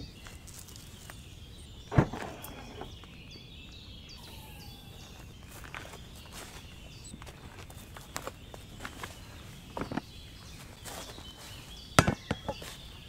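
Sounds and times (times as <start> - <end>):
footsteps on leaves: 0.0 - 1.4, 4.4 - 11.9, 12.5 - 13.0
small birds chirping: 0.0 - 13.0.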